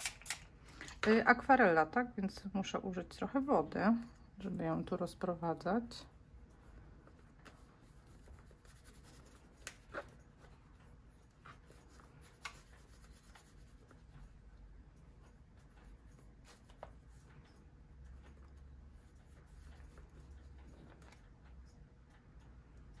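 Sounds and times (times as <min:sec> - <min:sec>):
hands rubbing on paper: 0:07.1 - 0:10.1, 0:11.4 - 0:14.4
light clicks and taps: 0:13.4 - 0:23.0.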